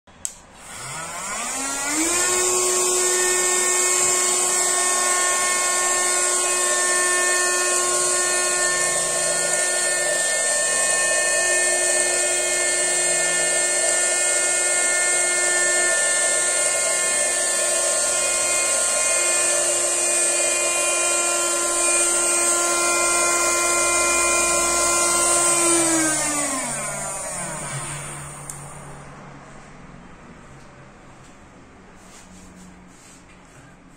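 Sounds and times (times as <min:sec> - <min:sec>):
vacuum cleaner motor whining: 0:00.6 - 0:29.0.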